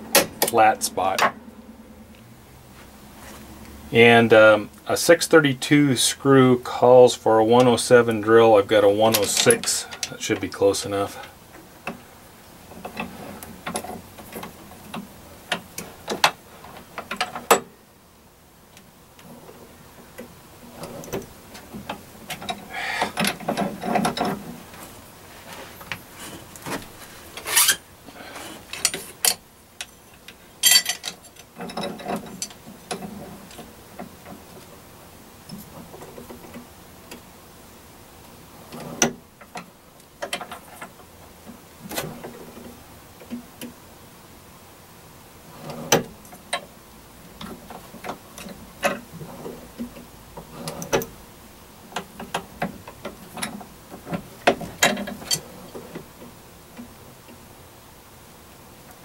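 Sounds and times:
metal clicks and rattles: 0:20.2 - 0:24.6, 0:28.6 - 0:34.7, 0:51.9 - 0:57.4.

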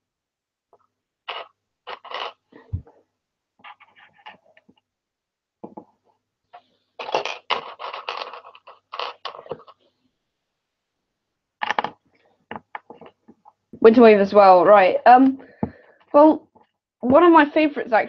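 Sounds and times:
plastic bricks clattering: 0:07.0 - 0:09.8.

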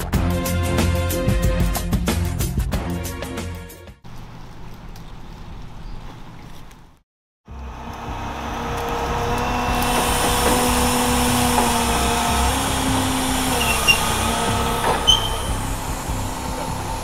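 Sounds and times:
truck engine running: 0:07.5 - 0:17.0.

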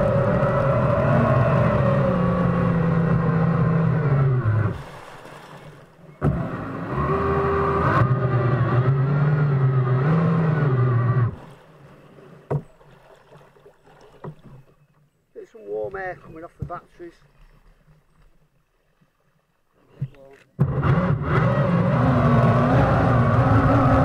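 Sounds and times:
water rushing past hull: 0:00.0 - 0:14.8.

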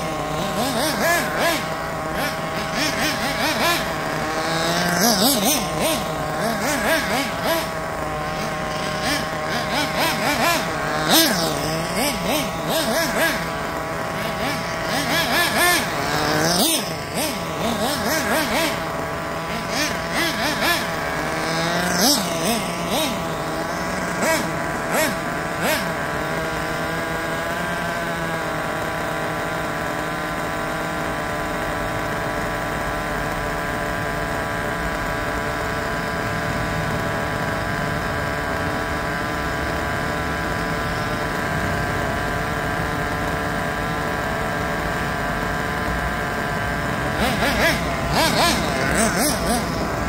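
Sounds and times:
short loud engine bursts: 0:00.0 - 0:50.0
small nitro engine idling: 0:00.0 - 0:50.0.

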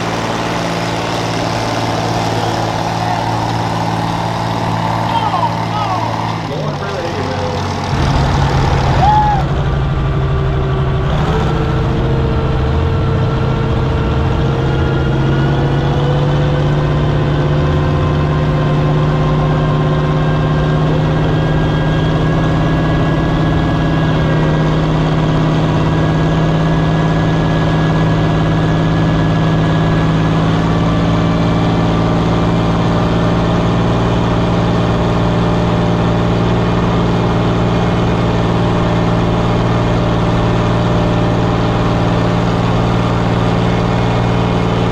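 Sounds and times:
tractor engine running: 0:00.0 - 0:44.9.

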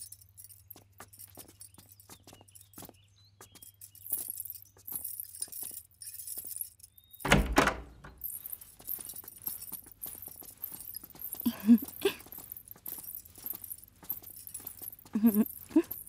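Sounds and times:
light metallic jingling: 0:00.0 - 0:16.0
heavy wooden door shutting: 0:07.2 - 0:08.2
footsteps: 0:08.0 - 0:16.0.

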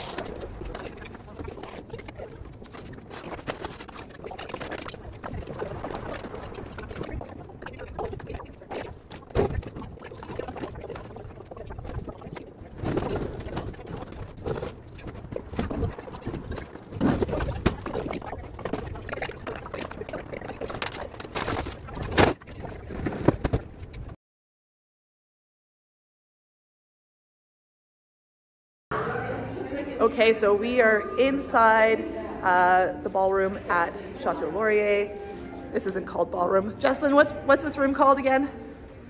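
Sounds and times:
outdoor background noise: 0:00.0 - 0:24.2
faint voices: 0:28.9 - 0:39.0.

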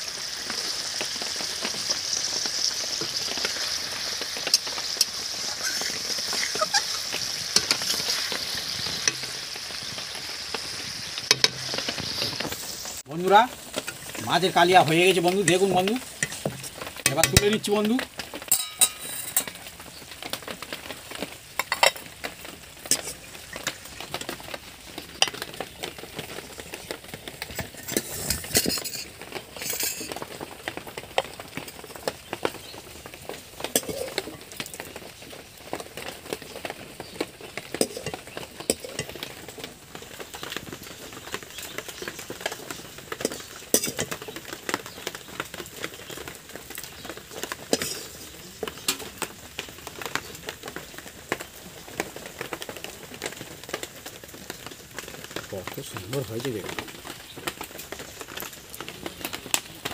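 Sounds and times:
curry sizzling: 0:00.0 - 0:59.9
metal spoon scraping a pan: 0:11.3 - 0:12.5, 0:14.8 - 0:17.8, 0:18.5 - 0:19.6, 0:21.6 - 0:22.0, 0:22.9 - 0:23.7, 0:27.4 - 0:30.2, 0:43.2 - 0:44.2, 0:47.7 - 0:48.3.

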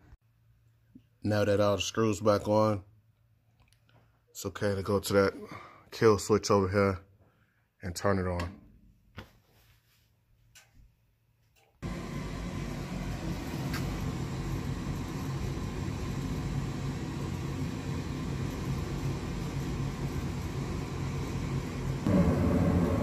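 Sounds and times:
furnace motor humming: 0:11.8 - 0:23.0.

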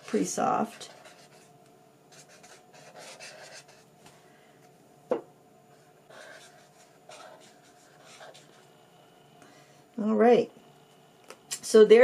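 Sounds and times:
marker scratching on paper: 0:00.7 - 0:01.5, 0:02.1 - 0:03.8, 0:06.1 - 0:08.6.

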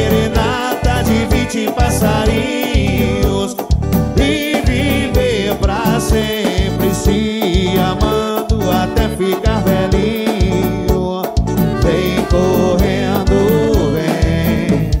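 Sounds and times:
wavering melody lead: 0:00.0 - 0:06.2, 0:09.8 - 0:14.8
bass: 0:00.0 - 0:15.0
steady drum beat: 0:00.0 - 0:15.0.

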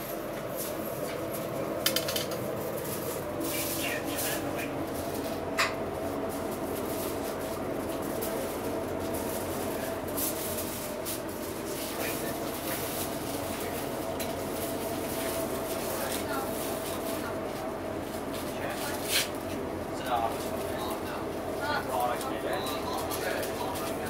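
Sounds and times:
steady background hum: 0:00.0 - 0:24.0
faint voices: 0:11.7 - 0:14.4.

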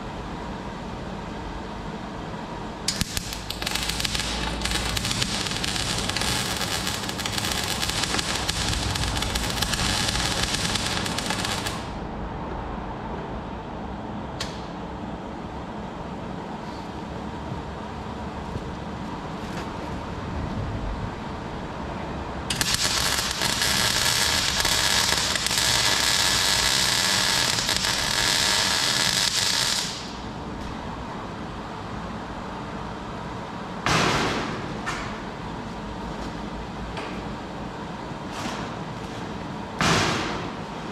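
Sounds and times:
arc welder crackling and hissing: 0:02.9 - 0:12.1, 0:22.5 - 0:30.3.

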